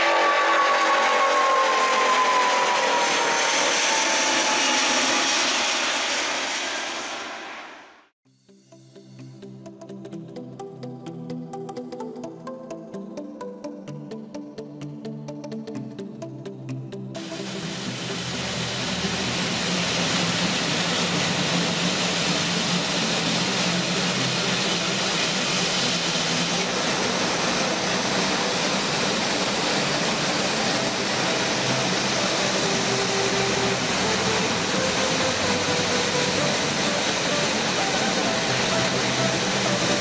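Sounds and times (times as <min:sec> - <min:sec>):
jet engines running: 0:00.0 - 0:08.1, 0:17.2 - 0:40.0.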